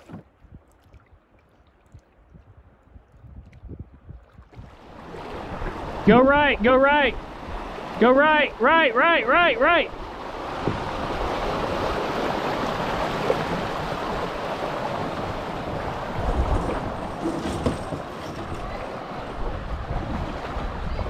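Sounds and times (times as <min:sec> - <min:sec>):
wind rumbling on microphone: 0:00.0 - 0:08.0, 0:09.9 - 0:21.0
river water rushing: 0:04.7 - 0:21.0.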